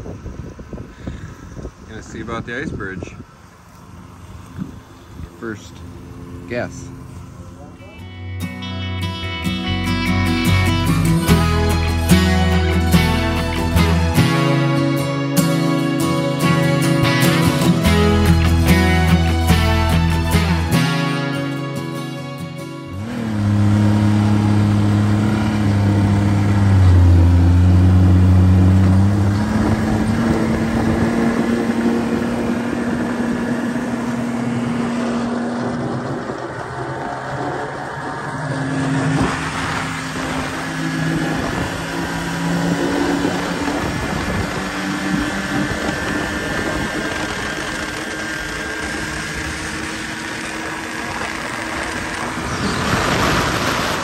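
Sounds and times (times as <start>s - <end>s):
snowmobile engine: 10.3s - 54.0s.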